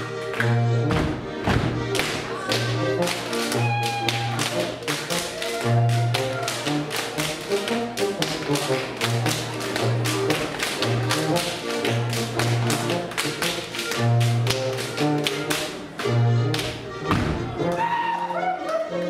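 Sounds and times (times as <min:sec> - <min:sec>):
folk dance music: 0:00.0 - 0:19.0
dancers slapping thighs and soles: 0:00.3 - 0:17.8
heavy thud: 0:17.1 - 0:17.5.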